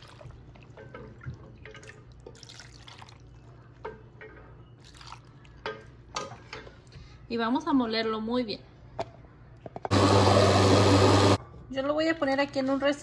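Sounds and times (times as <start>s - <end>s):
liquid pouring and splashing: 0.0s - 3.4s.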